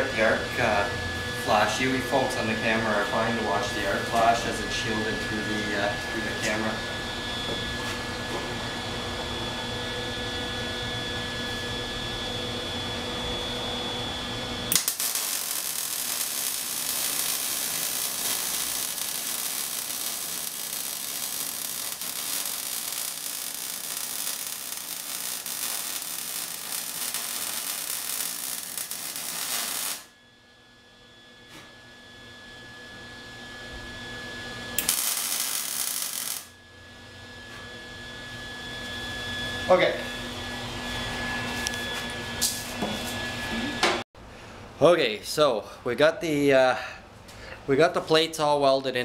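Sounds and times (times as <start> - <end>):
electrical hum: 0.0 - 48.5
welding arc crackling: 14.7 - 30.1, 34.8 - 36.5.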